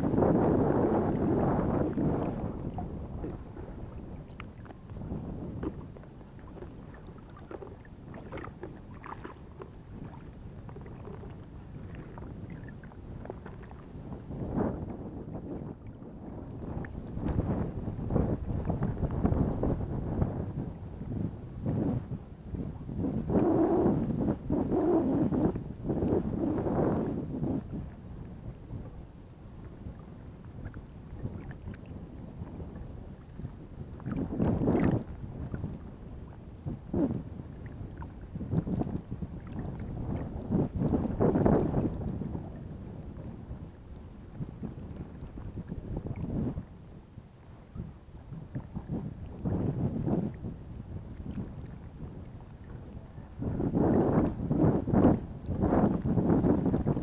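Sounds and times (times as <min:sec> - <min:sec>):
water lapping: 0:00.0 - 0:19.8, 0:29.5 - 0:46.6
wind rumble on microphone: 0:00.0 - 0:57.0
water sloshing and splashing: 0:01.0 - 0:14.0, 0:30.6 - 0:32.6.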